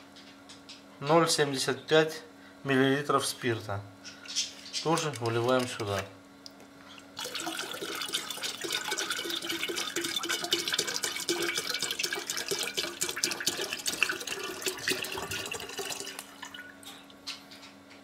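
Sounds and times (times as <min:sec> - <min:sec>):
liquid glugging from bottle: 0:06.9 - 0:17.0.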